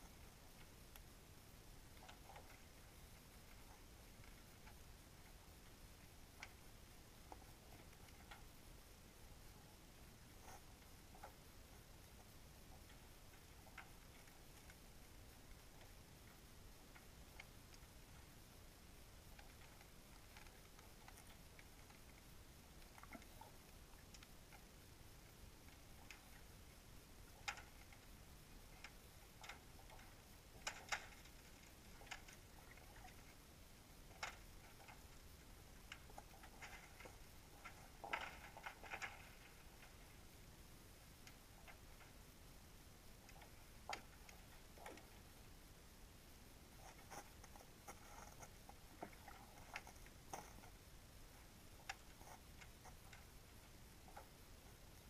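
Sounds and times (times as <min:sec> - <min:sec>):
faint clicks: 0:00.0 - 0:08.7, 0:09.3 - 0:40.4, 0:41.0 - 0:45.5, 0:46.7 - 0:55.0
faint sharp clicks underwater: 0:34.1 - 0:40.1.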